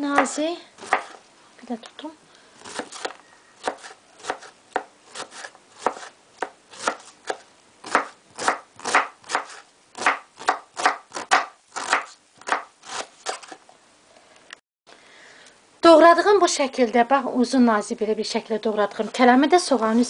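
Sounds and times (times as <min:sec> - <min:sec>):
knife slicing cabbage on board: 0:00.2 - 0:01.2, 0:02.6 - 0:13.6.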